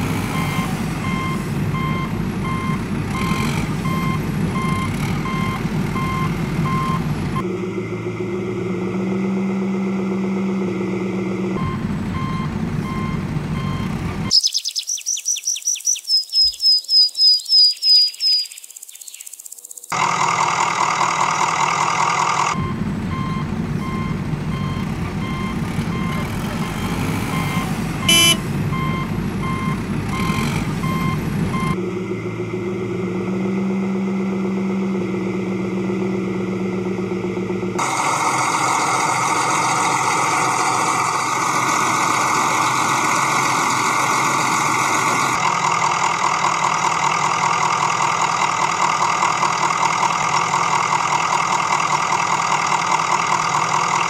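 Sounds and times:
diesel engine rumbling: 0.0s - 14.4s, 19.9s - 54.0s
reversing alarm beeping: 0.3s - 7.5s, 11.6s - 14.4s, 22.5s - 31.8s
rapid high chirps: 14.3s - 19.9s.

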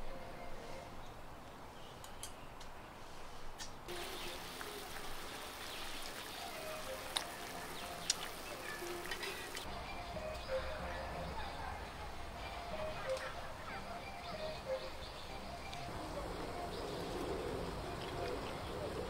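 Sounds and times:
steady hiss: 3.9s - 9.7s.

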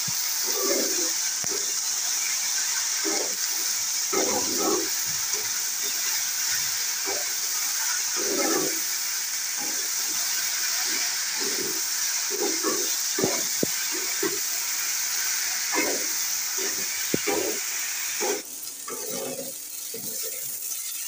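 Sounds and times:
okra sizzling in oil: 0.0s - 21.0s
metal spatula scraping: 3.0s - 9.0s, 15.7s - 20.5s.

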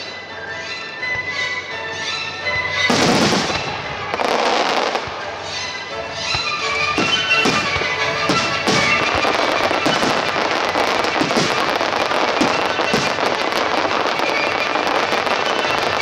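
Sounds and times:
firework crackling: 0.0s - 16.0s
deep firework booms: 2.9s - 3.8s, 7.0s - 13.6s
firework shells bursting: 6.2s - 16.0s.

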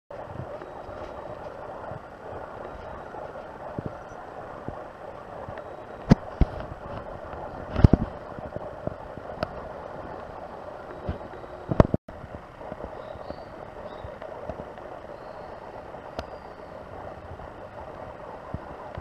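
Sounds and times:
outdoor background hiss and rumble: 0.1s - 19.0s.

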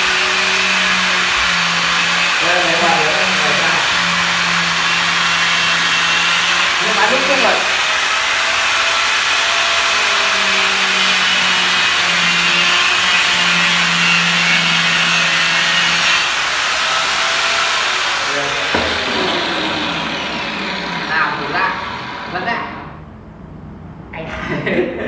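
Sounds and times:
angle grinder cutting: 0.0s - 22.9s.

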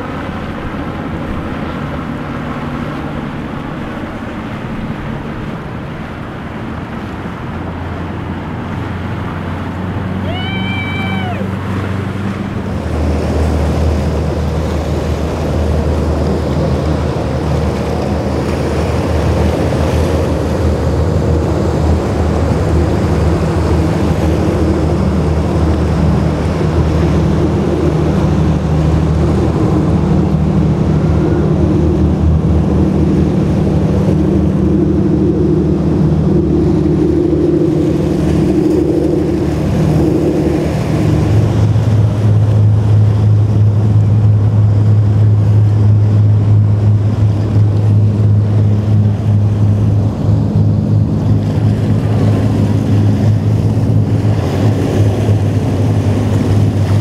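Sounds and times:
boat engines running: 0.0s - 57.0s
surf: 0.0s - 57.0s
wind noise on microphone: 11.0s - 57.0s.

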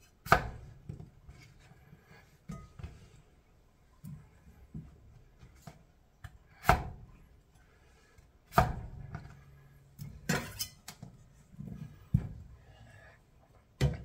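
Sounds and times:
knife chopping on cutting board: 0.2s - 0.7s, 6.6s - 7.0s, 8.5s - 9.2s.

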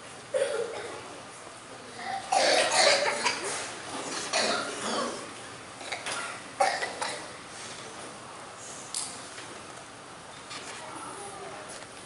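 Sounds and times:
person coughing: 0.3s - 1.0s, 2.0s - 3.6s, 4.3s - 5.2s, 5.8s - 7.3s.

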